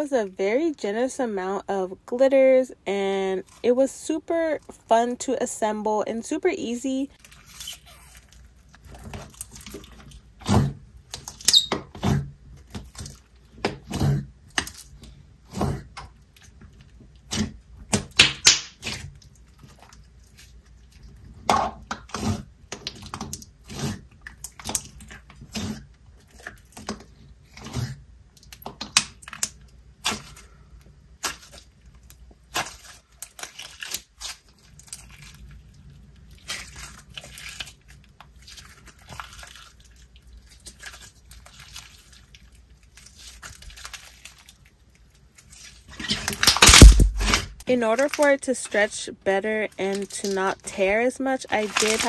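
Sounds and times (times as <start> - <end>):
slime sticky clicks and pops: 18.1 - 18.9.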